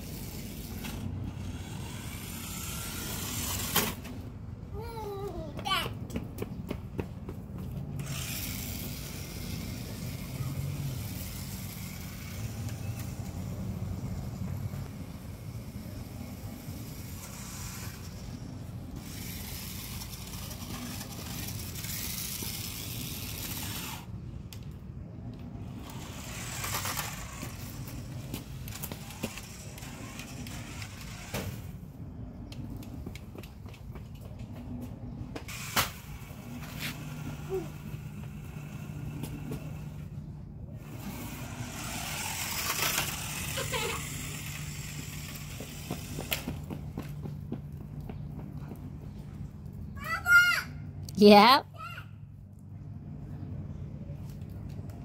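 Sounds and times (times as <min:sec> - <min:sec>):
toy car electric motor whirring: 0:00.0 - 0:05.8, 0:08.0 - 0:24.8, 0:25.4 - 0:32.0, 0:35.4 - 0:46.7
plastic wheels on concrete: 0:00.0 - 0:51.6, 0:52.6 - 0:55.0.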